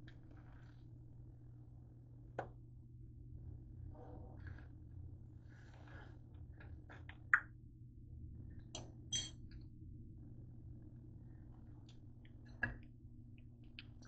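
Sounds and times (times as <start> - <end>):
metal fork clinking on griddle: 9.1 - 9.4.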